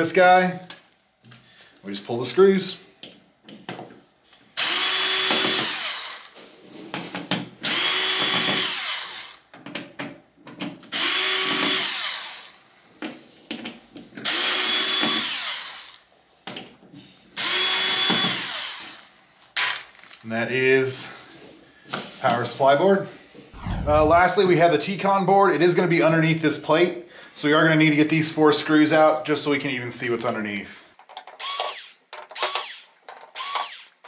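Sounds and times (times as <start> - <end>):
cordless drill running: 4.6 - 6.4, 7.6 - 9.4, 10.9 - 12.6, 14.2 - 16.0, 17.4 - 19.8, 31.4 - 34.0.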